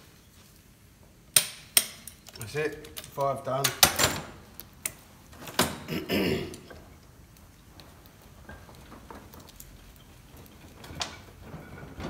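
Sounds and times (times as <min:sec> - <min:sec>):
hand tools clicking on bolts: 0:01.3 - 0:05.0
metallic clatter: 0:06.7 - 0:12.0.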